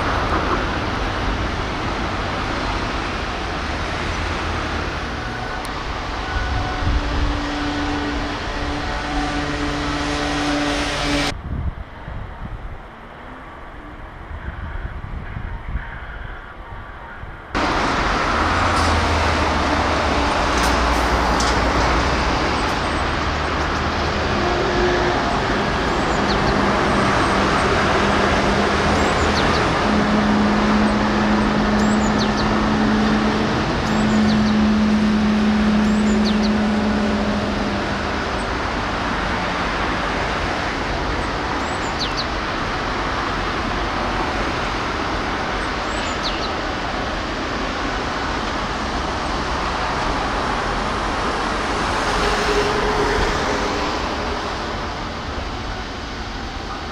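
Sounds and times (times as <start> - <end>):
motor traffic: 0.0 - 11.6, 17.5 - 56.9
engine hum: 17.5 - 46.1.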